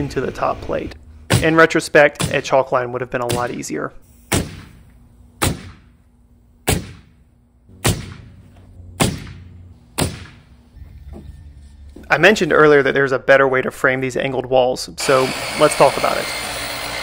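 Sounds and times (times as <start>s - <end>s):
nail gun shots: 4.3s - 4.8s, 5.4s - 5.9s, 6.7s - 7.2s, 7.8s - 8.3s, 9.0s - 9.4s, 10.0s - 10.4s.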